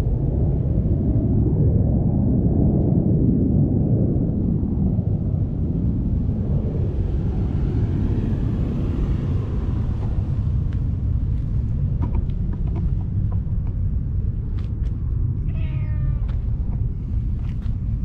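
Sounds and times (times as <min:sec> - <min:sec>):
wind buffeting microphone: 0:00.0 - 0:18.0
cat meowing: 0:15.4 - 0:16.4.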